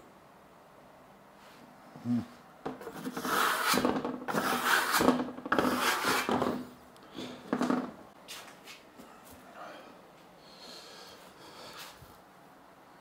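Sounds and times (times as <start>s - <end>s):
trowel scraping plaster: 2.8s - 6.7s.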